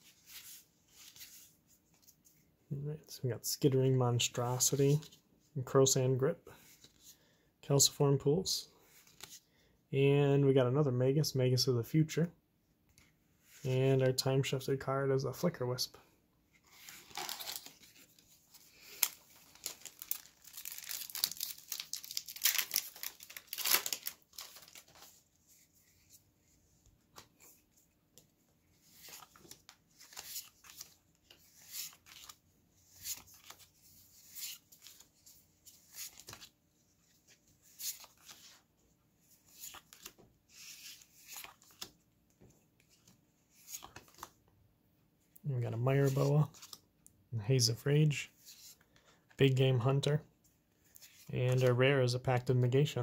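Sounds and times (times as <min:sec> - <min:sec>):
foil wrapper tearing and crinkling: 0:18.9 - 0:24.8.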